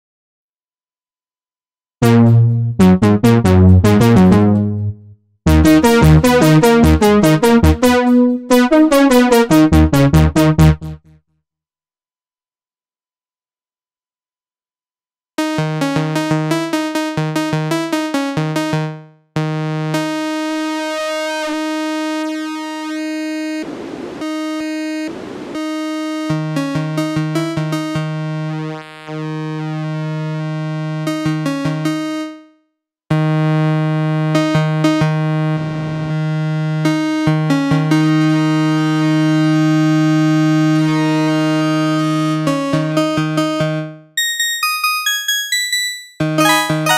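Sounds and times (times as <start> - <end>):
synthesizer notes: 2.0 - 11.0, 46.2 - 46.9
synthesizer hiss: 23.4 - 26.6.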